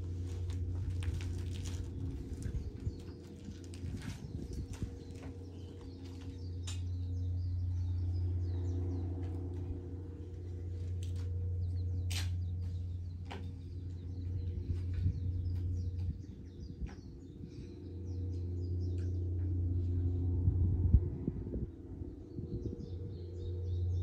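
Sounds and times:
low steady hum: 0.0 - 24.0
small birds chirping: 1.2 - 20.2.

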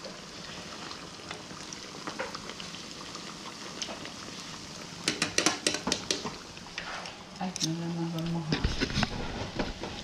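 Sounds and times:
oil sizzling with pops: 0.0 - 10.0
sharp clicks and knocks: 5.0 - 6.4.

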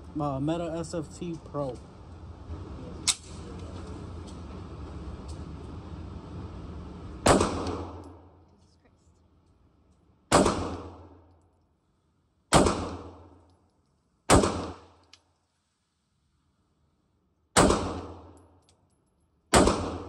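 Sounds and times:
pistol shots with echo: 7.2 - 8.2, 10.3 - 11.2, 12.5 - 13.4, 14.3 - 14.9, 17.6 - 18.4, 19.5 - 20.0.

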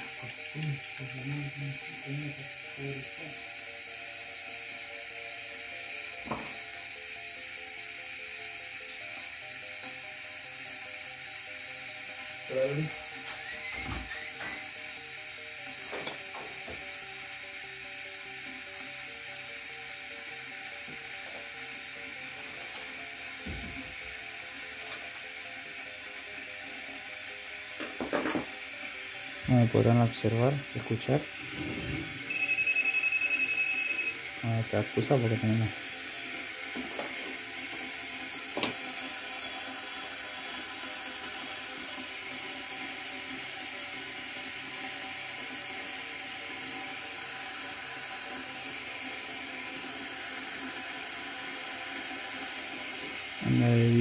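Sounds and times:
faint background music: 0.0 - 38.5, 50.0 - 54.0
kettle water hissing: 0.0 - 54.0.

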